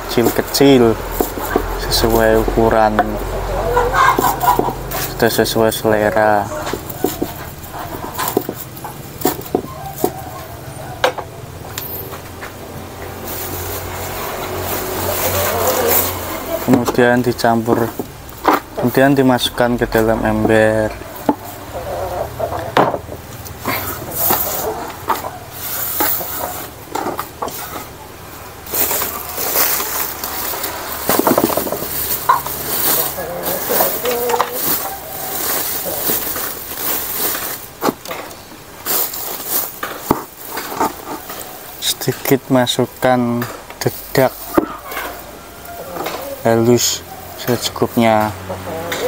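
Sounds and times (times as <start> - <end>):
leaves scooped off wooden board: 13.1 - 16.5, 28.7 - 38.0
sack rustling: 13.1 - 16.7, 28.6 - 38.0, 38.8 - 41.8
leaves dropped into rubber bucket: 28.7 - 41.5.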